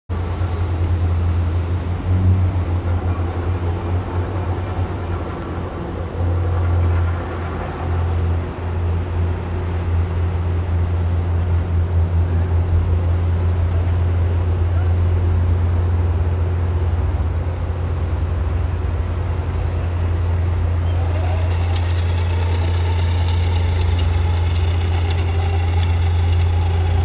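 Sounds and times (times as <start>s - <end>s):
steady low rumble: 0.1s - 27.0s.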